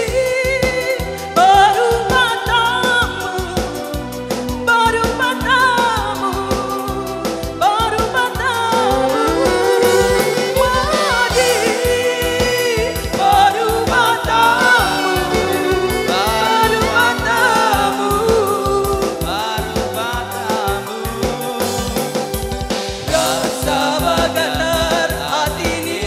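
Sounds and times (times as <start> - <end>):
instrumental accompaniment with beat: 0.0 - 26.0
person singing with wavering voice: 5.1 - 22.4, 23.1 - 26.0.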